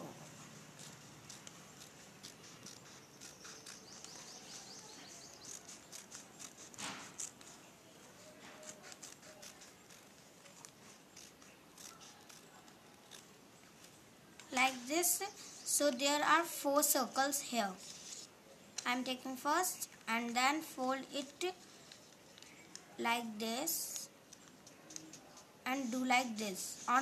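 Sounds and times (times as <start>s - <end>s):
scissors snipping paper: 0.2s - 16.2s, 21.2s - 22.9s, 23.8s - 27.0s.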